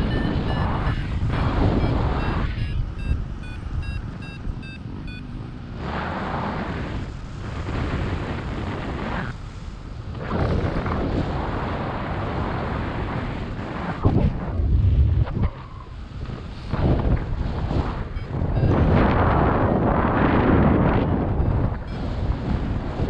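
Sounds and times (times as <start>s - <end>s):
variometer beeping rapidly: 0.0s - 5.7s, 17.4s - 23.0s
wind rushing over microphone: 0.0s - 23.0s.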